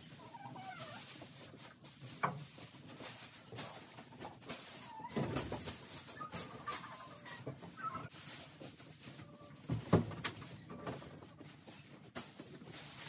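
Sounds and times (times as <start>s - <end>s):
footsteps through straw: 0.0s - 13.0s
straw rustling: 0.0s - 13.0s
rooster clucking: 6.0s - 8.1s.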